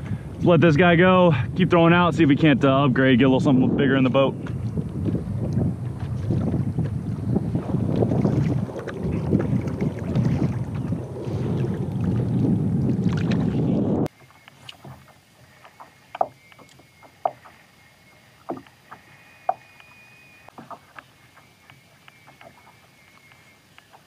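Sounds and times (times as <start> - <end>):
wind buffeting microphone: 0.0 - 17.6.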